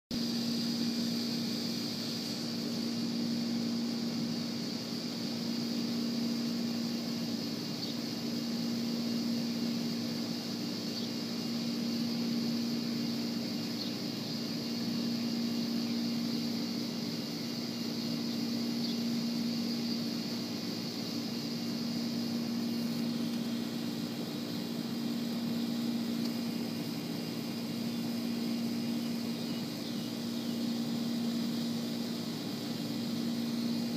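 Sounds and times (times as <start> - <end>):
high hiss: 0.1 - 33.9
low hum: 0.1 - 33.9
faint high ticks: 26.2 - 26.4.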